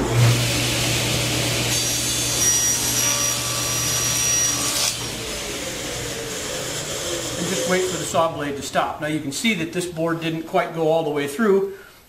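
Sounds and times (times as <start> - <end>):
table saw motor humming: 0.0 - 8.8
saw blade cutting wood: 1.6 - 8.6.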